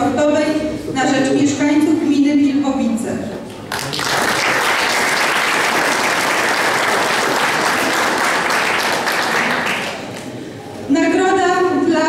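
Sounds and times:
audience applauding: 0:03.6 - 0:10.4.

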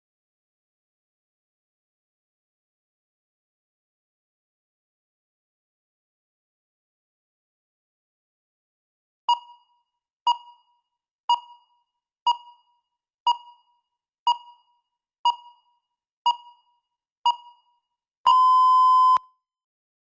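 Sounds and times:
timer beeping: 0:09.3 - 0:19.3.

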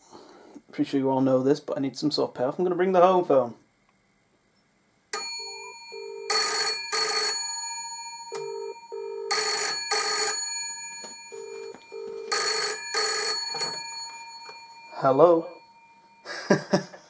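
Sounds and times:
telephone bell ringing: 0:05.1 - 0:17.0.

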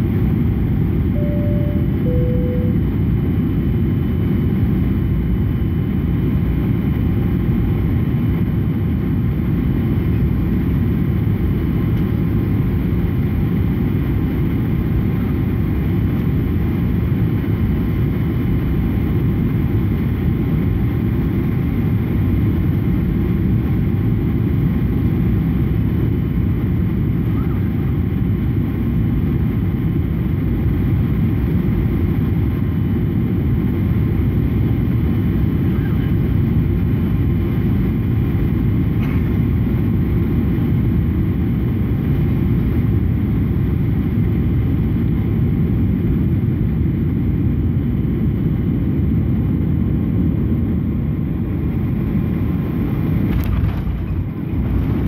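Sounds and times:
faint steady whine: 0:00.0 - 0:08.6
airliner cabin engine rumble: 0:00.0 - 0:55.0.

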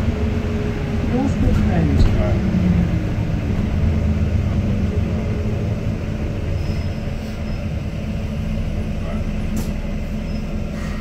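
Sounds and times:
bus engine drone: 0:00.0 - 0:11.0.

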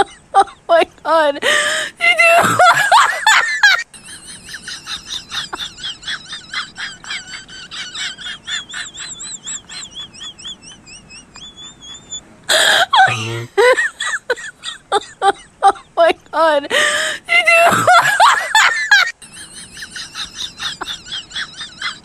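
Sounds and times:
high warbling chirps: 0:08.6 - 0:12.2.

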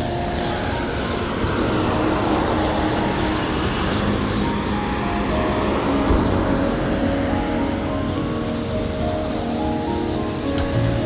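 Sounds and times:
soft music: 0:00.0 - 0:11.0
traffic rumble: 0:00.0 - 0:11.0.

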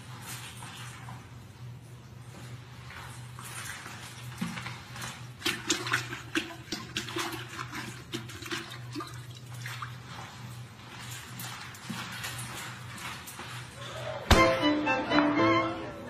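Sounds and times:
water splashing in toilet bowl: 0:04.4 - 0:10.1.

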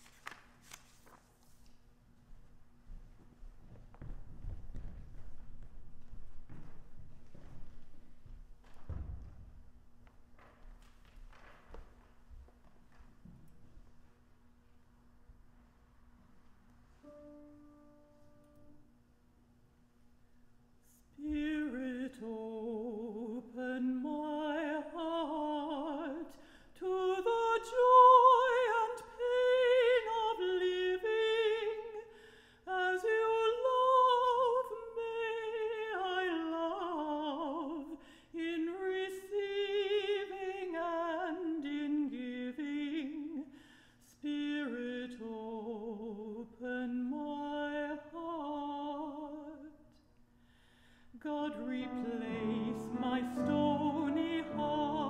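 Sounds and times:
faint held tone: 0:17.0 - 0:19.0
person singing with vibrato: 0:20.9 - 0:49.8, 0:51.1 - 0:55.0.

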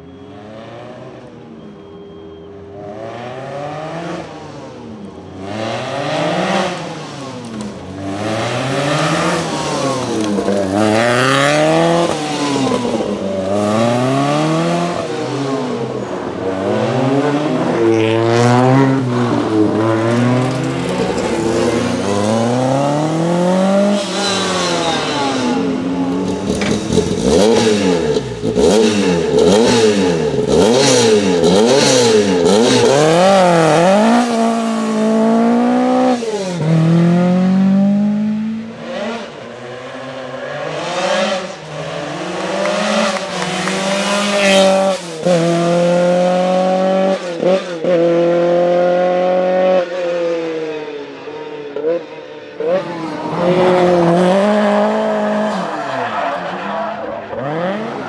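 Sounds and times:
car engine revving hard: 0:16.6 - 0:39.4, 0:40.5 - 0:49.7.

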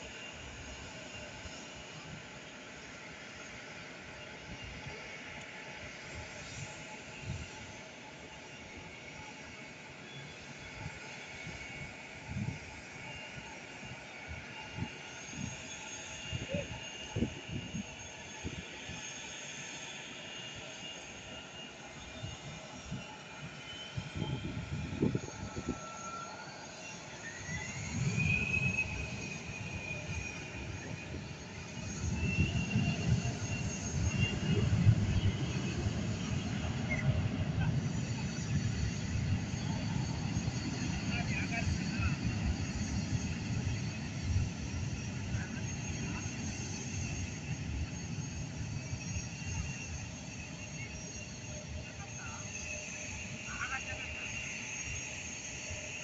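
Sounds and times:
jet engine whine rising: 0:00.0 - 0:56.0
distant jet engines rumbling: 0:21.9 - 0:55.8.

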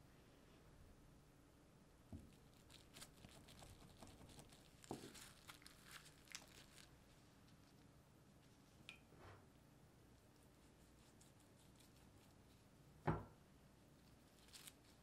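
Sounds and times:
plastic wrap crinkling: 0:02.3 - 0:07.0
soft thud: 0:13.0 - 0:13.3.

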